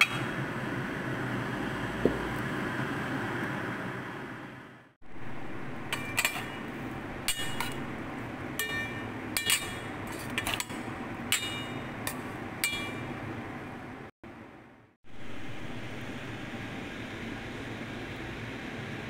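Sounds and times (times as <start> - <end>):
metal spatula scraping pan: 5.9 - 8.0, 8.6 - 13.0.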